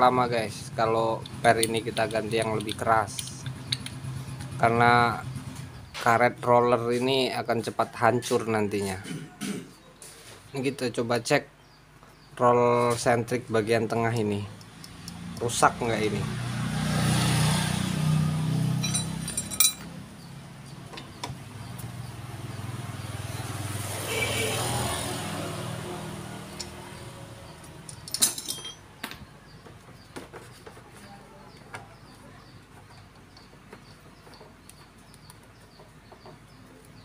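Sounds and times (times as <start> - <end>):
vehicle engine running: 0.2 - 6.0, 14.5 - 28.1
metallic clinks of tools: 18.8 - 19.9, 27.9 - 28.9
bird chirping: 28.9 - 37.0.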